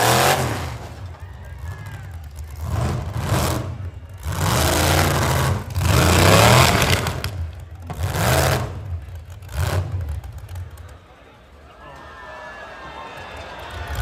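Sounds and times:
car engines revving hard: 0:00.0 - 0:01.0, 0:02.1 - 0:10.9.

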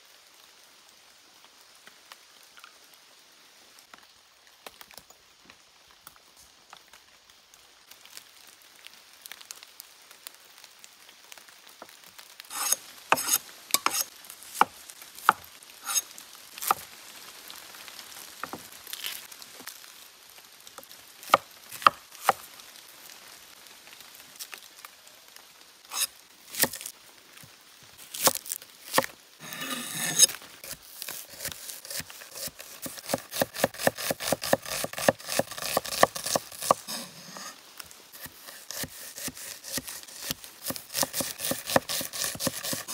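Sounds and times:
knife chopping on wooden board: 0:12.5 - 0:14.0, 0:15.3 - 0:16.0, 0:25.9 - 0:26.8, 0:28.2 - 0:30.3, 0:31.0 - 0:37.5, 0:38.2 - 0:42.9
onion skin rustling: 0:28.0 - 0:37.6, 0:38.2 - 0:42.9.

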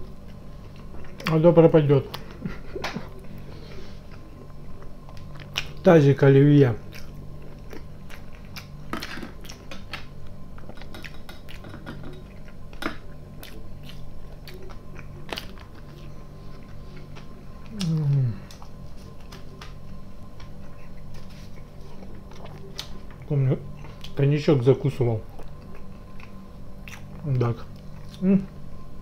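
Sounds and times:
close chewing and mouth sounds: 0:00.0 - 0:05.9, 0:06.6 - 0:24.2, 0:24.9 - 0:28.6
person humming mmm: 0:17.6 - 0:18.7, 0:28.1 - 0:28.6.

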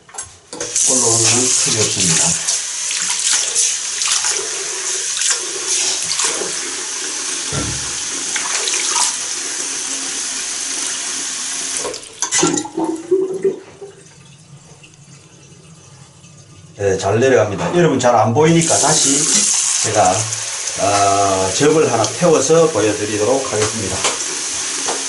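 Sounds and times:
hands rinsing under water: 0:00.6 - 0:09.4, 0:18.6 - 0:25.0
tap running into sink: 0:05.2 - 0:06.8, 0:07.4 - 0:09.2, 0:23.4 - 0:25.0
knocks: 0:07.5 - 0:08.0.

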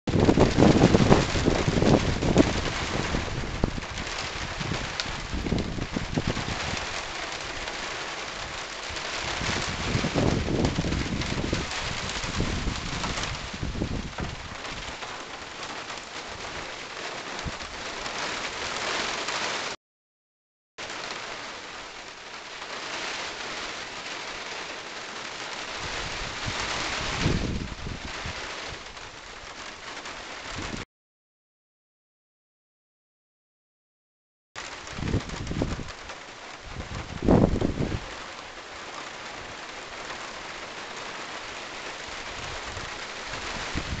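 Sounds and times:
wind buffeting microphone: 0:00.1 - 0:07.8, 0:08.4 - 0:15.1, 0:16.3 - 0:18.2, 0:25.7 - 0:29.0, 0:34.8 - 0:38.2, 0:42.2 - 0:44.0
gusting wind: 0:00.1 - 0:19.7, 0:25.3 - 0:30.8, 0:34.6 - 0:44.0
rain hissing: 0:00.1 - 0:19.8, 0:20.8 - 0:30.8, 0:34.6 - 0:44.0.

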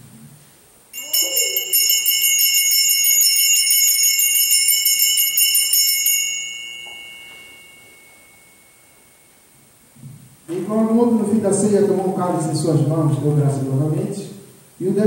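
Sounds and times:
altar bells ringing: 0:01.0 - 0:09.9.

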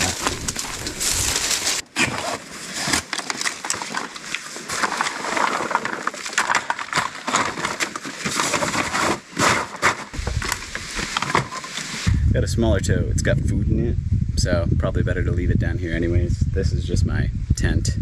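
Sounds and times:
fabric wagon unfolding: 0:00.0 - 0:12.0
sticks and leaves crackling: 0:00.0 - 0:12.1.

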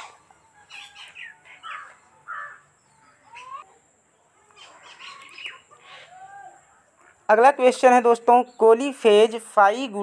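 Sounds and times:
crows cawing: 0:00.9 - 0:02.6.

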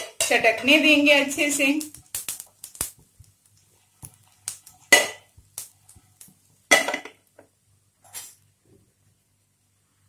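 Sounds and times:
spices sizzling and popping in pan: 0:00.0 - 0:07.6.

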